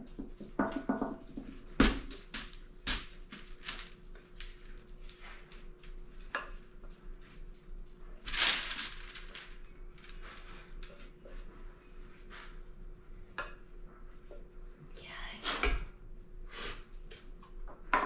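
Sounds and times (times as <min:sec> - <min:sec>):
spatula knocking on glass bowl: 0:00.4 - 0:01.4.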